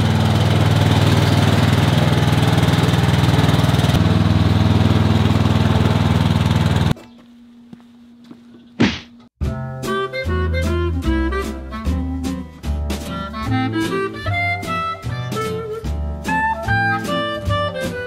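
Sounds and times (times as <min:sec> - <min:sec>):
lawn tractor engine running: 0:00.0 - 0:07.1.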